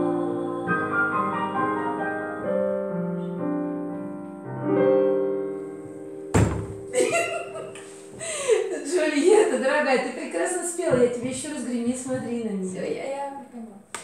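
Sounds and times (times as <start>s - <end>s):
digital piano chords: 0.0s - 8.6s
sharp thump: 6.3s - 6.9s.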